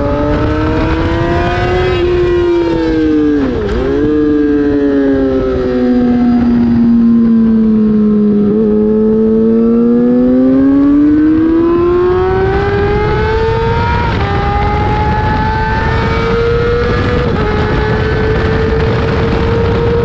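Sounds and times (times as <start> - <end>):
motorcycle engine accelerating: 0.0 - 20.0.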